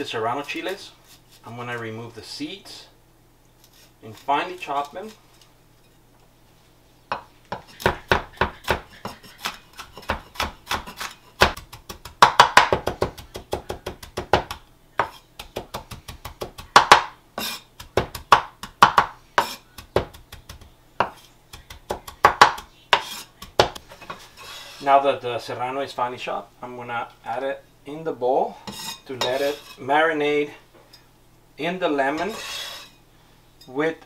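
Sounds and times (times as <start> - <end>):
knife chopping on wooden board: 7.1 - 23.8.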